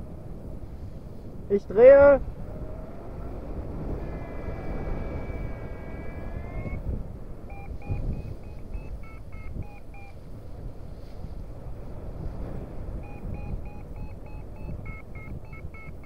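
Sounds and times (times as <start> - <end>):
wind noise on microphone: 0.0 - 16.0
variometer steady tone: 4.7 - 10.3, 12.9 - 16.0
variometer short beeps: 6.4 - 6.8, 7.5 - 10.2, 13.0 - 16.0.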